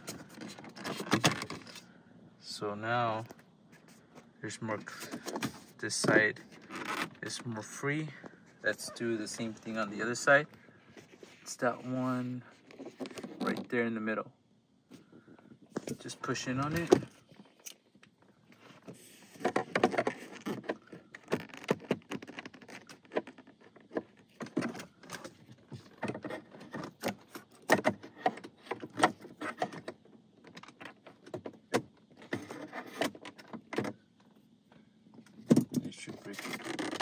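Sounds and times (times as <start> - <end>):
plastic panel clicks and rattles: 19.4 - 34.0.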